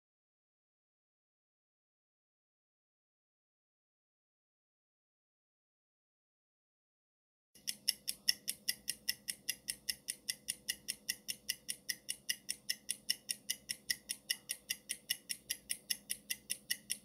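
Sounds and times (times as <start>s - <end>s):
fast clock-like ticking: 7.6s - 17.0s.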